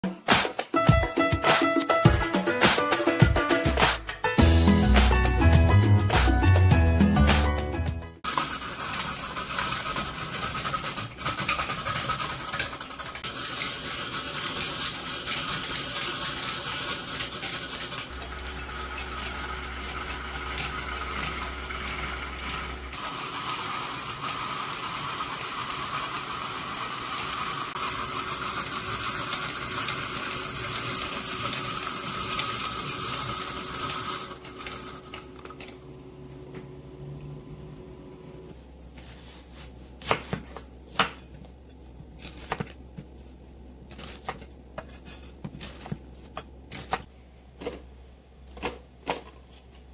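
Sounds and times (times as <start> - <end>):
music: 0.0 - 8.2
stand mixer shredder whirring: 8.2 - 35.1.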